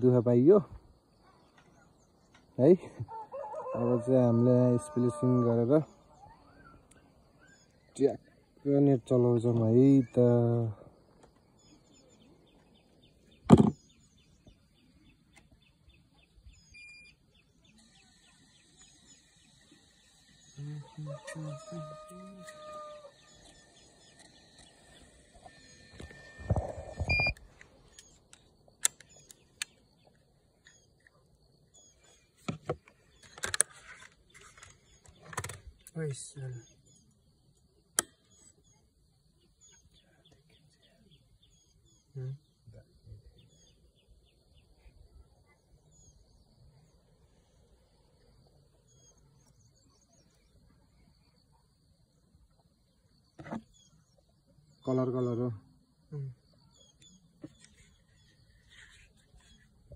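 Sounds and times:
faint bird chirps: 4.7 - 59.9
short electronic beep: 25.5 - 27.4
plastic clicks and handling: 32.5 - 36.0.

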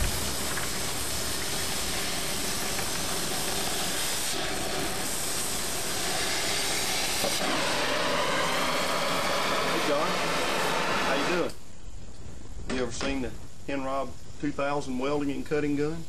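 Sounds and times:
torch flame hissing: 0.0 - 11.5.

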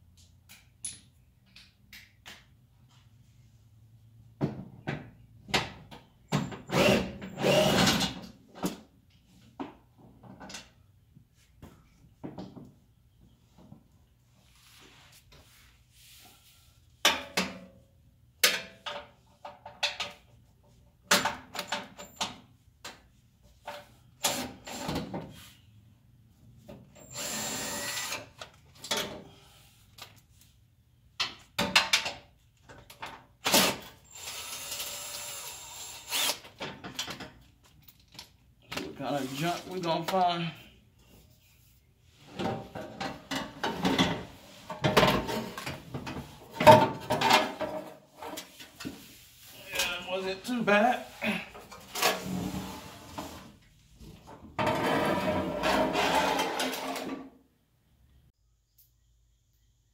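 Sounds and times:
cordless drill running: 6.7 - 7.8, 27.1 - 28.2, 34.1 - 36.4
tools and metal clattering: 18.4 - 20.5, 36.6 - 38.9, 42.2 - 48.9, 54.2 - 57.3.

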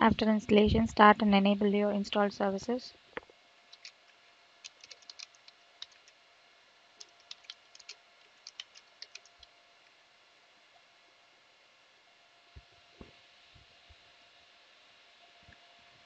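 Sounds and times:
keyboard typing clicks: 3.7 - 4.0, 4.6 - 6.2, 7.0 - 9.5.

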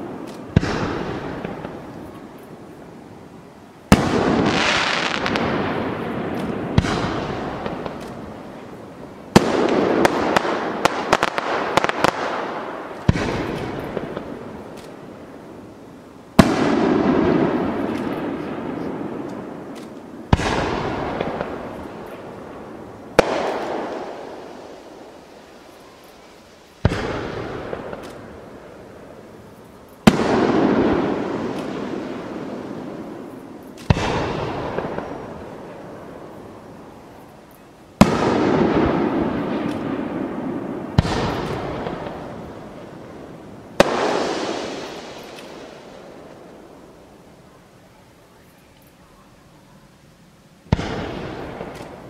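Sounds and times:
firework bangs with rumbling echo: 0.0 - 2.1, 3.9 - 14.7, 16.4 - 25.5, 26.8 - 28.6, 30.0 - 36.4, 38.0 - 46.8, 50.7 - 52.0
faint firework crackles: 0.0 - 52.0.

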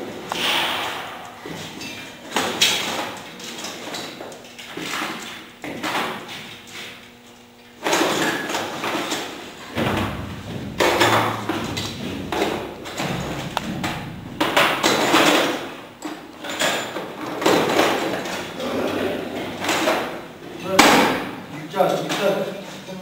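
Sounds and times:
metal clanking and rattling: 7.8 - 21.0
sharp knocks: 9.7 - 16.2.

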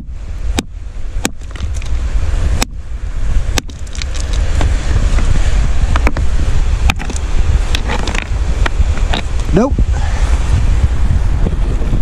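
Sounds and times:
wind rumble on microphone: 0.0 - 12.0
hammer striking rock: 0.5 - 1.8, 3.6 - 4.3.

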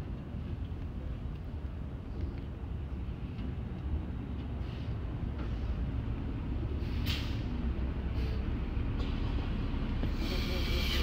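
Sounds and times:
bus engine rumbling: 0.0 - 11.0
air brake hiss: 4.6 - 5.8, 6.8 - 7.5, 8.1 - 8.5, 10.1 - 11.0.

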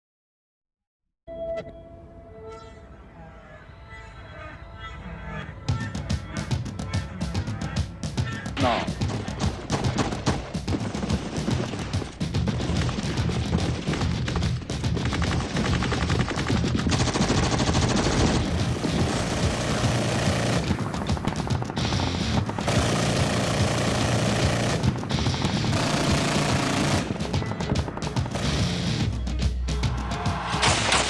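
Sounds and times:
automatic gunfire bursts: 15.0 - 28.9
rock music: 18.4 - 22.7, 23.6 - 30.8.

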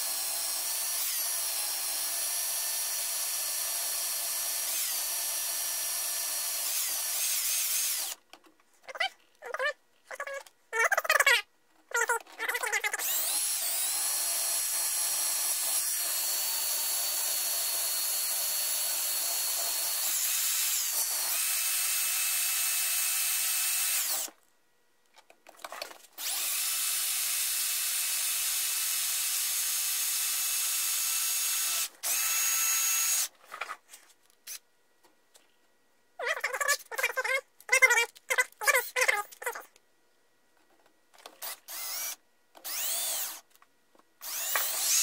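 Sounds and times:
power drill motor whine: 0.0 - 8.2, 13.0 - 24.3, 26.2 - 33.3, 41.7 - 43.4, 44.2 - 45.0.

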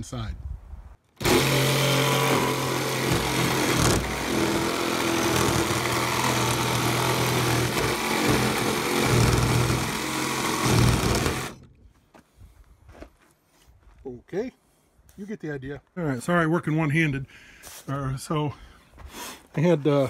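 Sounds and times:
sheet sander on wood: 1.2 - 11.7.

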